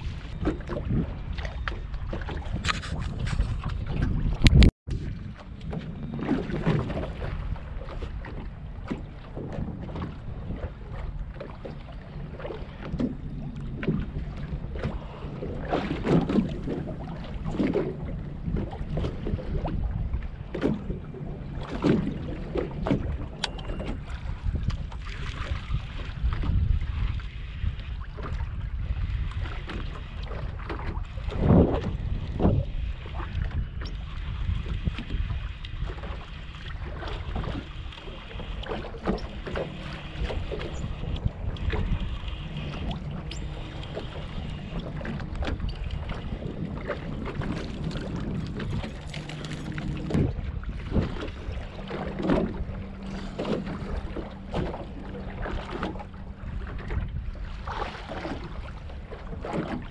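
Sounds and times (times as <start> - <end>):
water lapping at boat hull: 0.0 - 59.9
wind buffeting microphone: 0.0 - 59.9.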